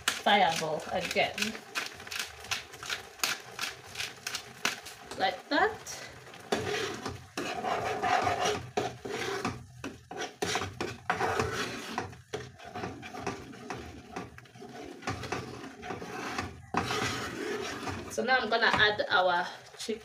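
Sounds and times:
spatula scraping frying pan: 5.8s - 19.2s.

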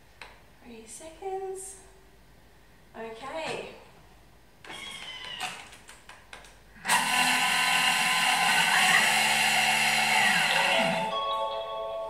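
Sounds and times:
kitchen machine motor milling sugar: 6.8s - 11.1s.

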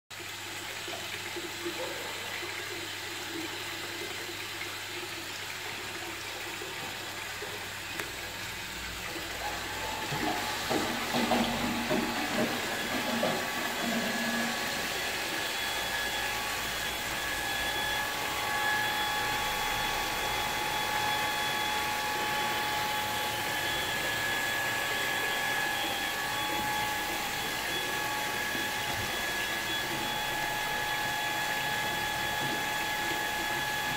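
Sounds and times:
electric pump whining: 6.8s - 33.9s.

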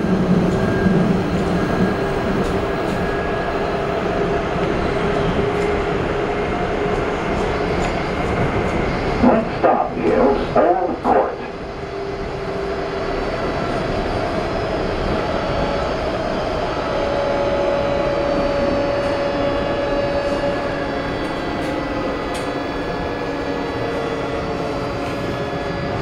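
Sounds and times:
wheels rumbling on rail: 0.0s - 26.0s.

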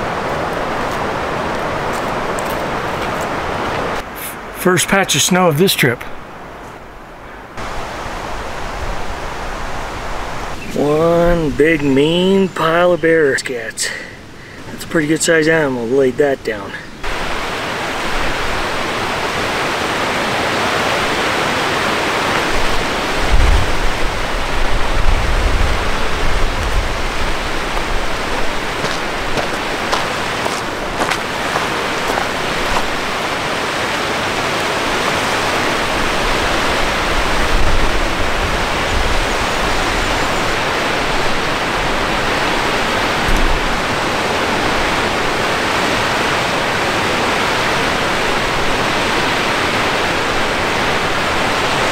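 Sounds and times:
river rushing: 0.0s - 12.8s, 13.4s - 51.9s
low rumbles on microphone: 22.6s - 28.5s.

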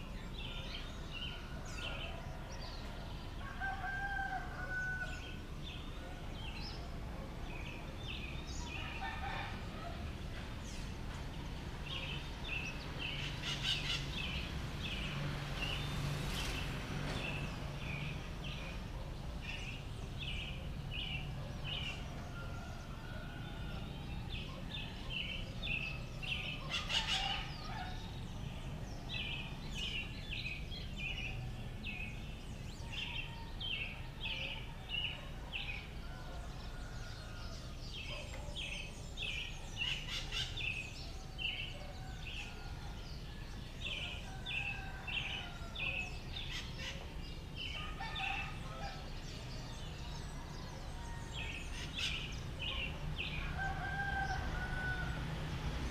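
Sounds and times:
rooster crowing: 1.5s - 5.4s, 53.4s - 55.6s.

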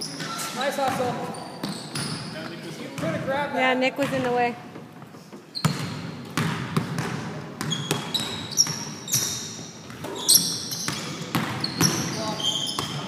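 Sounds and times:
sneaker squeaks: 0.0s - 3.1s, 5.4s - 13.0s
basketball bouncing on wooden floor: 4.0s - 4.5s, 5.6s - 12.2s.

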